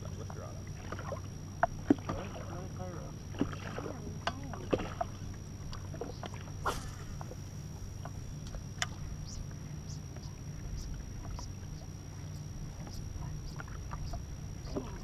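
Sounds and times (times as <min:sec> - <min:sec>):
boat low hum: 0:00.0 - 0:15.0.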